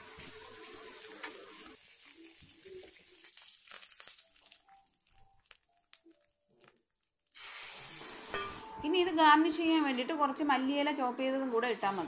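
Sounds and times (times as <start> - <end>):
hot oil sizzling: 0.0 - 8.9.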